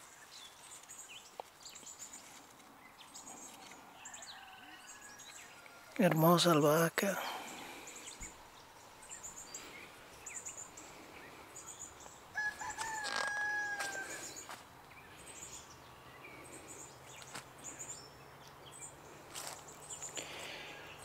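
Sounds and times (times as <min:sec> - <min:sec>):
small birds chirping: 0:00.0 - 0:21.0
rooster crowing: 0:04.0 - 0:06.0, 0:12.3 - 0:14.5.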